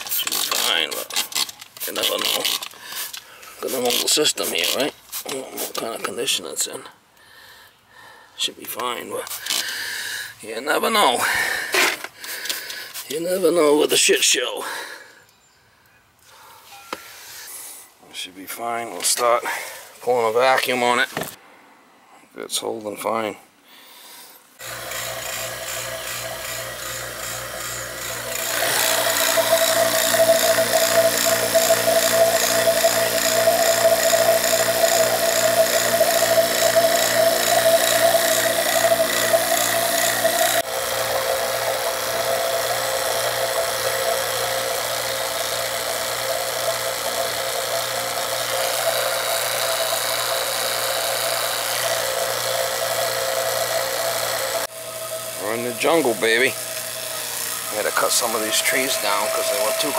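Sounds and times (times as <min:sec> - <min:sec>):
vacuum pump humming and throbbing: 0:24.6 - 0:59.9.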